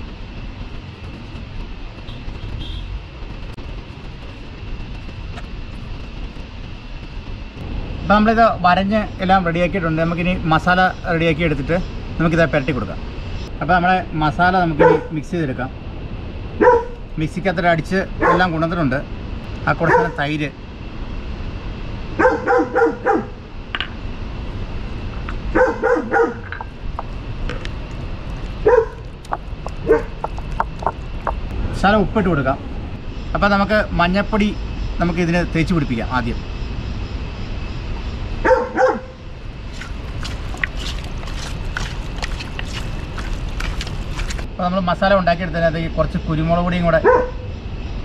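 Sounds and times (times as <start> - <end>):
low rumble: 0.0 - 19.8, 23.0 - 44.6
dog barking: 14.8 - 15.1, 16.6 - 17.0, 18.2 - 18.5, 19.8 - 20.2, 22.2 - 23.4, 25.5 - 26.5, 28.6 - 29.0, 29.8 - 30.2, 38.4 - 39.2, 47.0 - 47.5
hand squelching raw chicken: 39.7 - 44.4.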